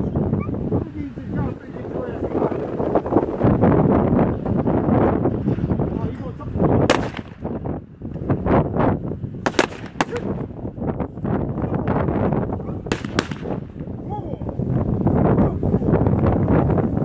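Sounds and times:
wind buffeting microphone: 0.0s - 17.0s
pistol shots: 6.9s - 7.4s, 9.4s - 10.4s, 12.9s - 13.7s.

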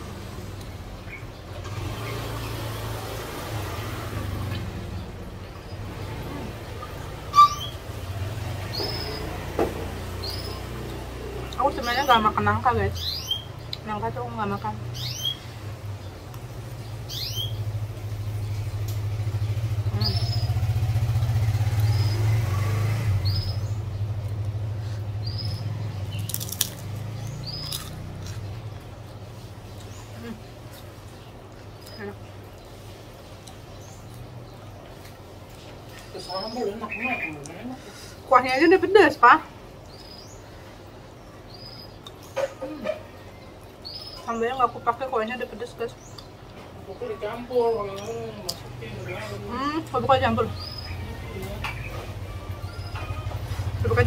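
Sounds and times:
vehicle engine humming: 0.0s - 54.0s
high bird chirps: 6.8s - 8.0s, 8.6s - 9.4s, 17.0s - 17.7s, 19.5s - 20.8s.

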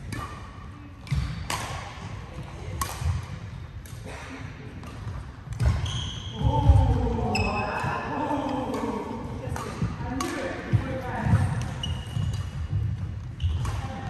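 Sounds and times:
racket hitting shuttlecock: 0.0s - 6.0s, 7.4s - 14.0s
shoes squeaking: 11.7s - 14.0s.

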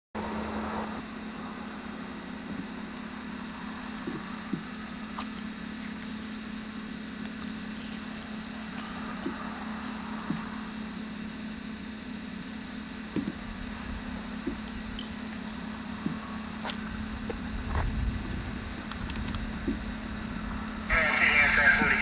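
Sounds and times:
distant locomotive drone: 0.2s - 22.0s.

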